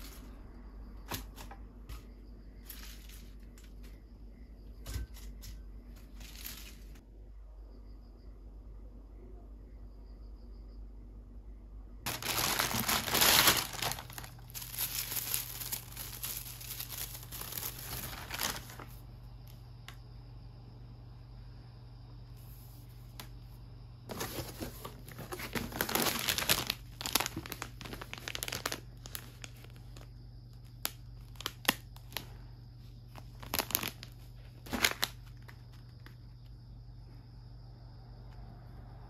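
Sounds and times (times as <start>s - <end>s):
crinkling and rustling: 1.0s - 4.1s, 4.8s - 7.0s, 12.1s - 19.0s, 24.1s - 32.4s, 33.0s - 36.4s
steady low hum: 13.7s - 25.1s.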